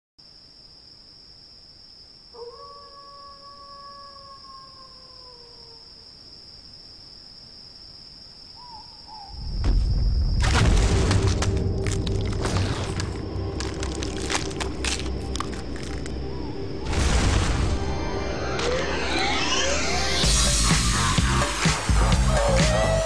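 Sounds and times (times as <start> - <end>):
crickets chirring: 0.2 - 23.0
long falling howl: 2.3 - 6.0
deep rumble: 9.3 - 18.5
earth cracking and crunching: 9.5 - 17.9
wavering calls: 21.8 - 23.0.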